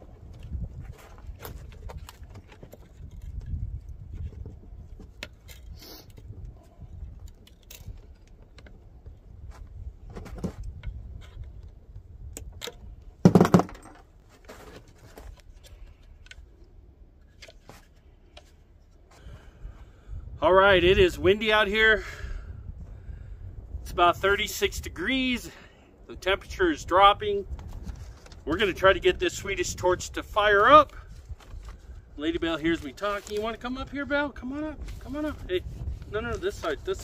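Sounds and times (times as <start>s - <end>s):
wind rumbling on microphone: 0.0s - 13.2s, 19.2s - 25.4s, 26.0s - 37.0s
wood knock: 13.2s - 14.0s.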